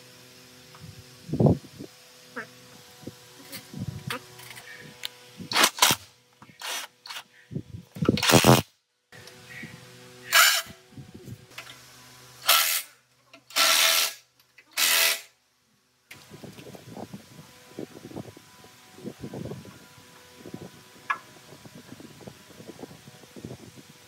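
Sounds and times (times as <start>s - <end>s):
power tool running in bursts: 0.0s - 6.0s, 9.2s - 15.3s.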